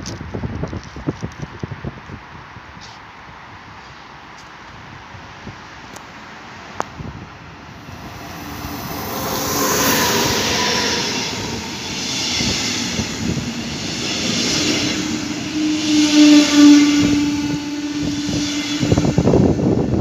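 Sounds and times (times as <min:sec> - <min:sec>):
train wheels rumbling on rail: 0:03.8 - 0:20.0
wind on microphone: 0:06.8 - 0:20.0.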